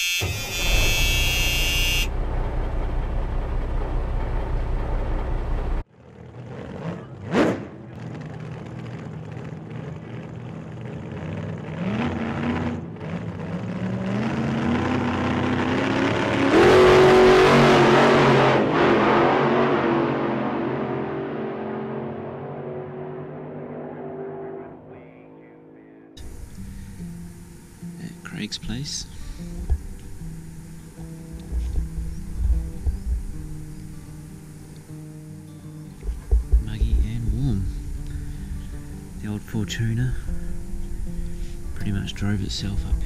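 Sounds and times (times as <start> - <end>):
car engine accelerating: 0.5 - 43.0
loud low rumble: 2.1 - 5.8, 29.5 - 34.4, 36.0 - 43.0.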